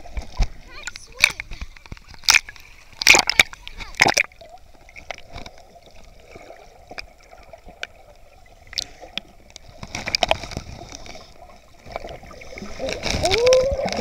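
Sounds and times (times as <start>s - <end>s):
underwater sloshing and gurgling: 0.0s - 14.0s
sharp clicks and crackles: 0.1s - 4.4s.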